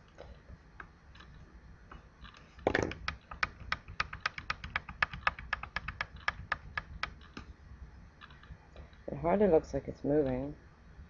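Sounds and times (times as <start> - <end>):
computer keys clicking: 3.0 - 7.4.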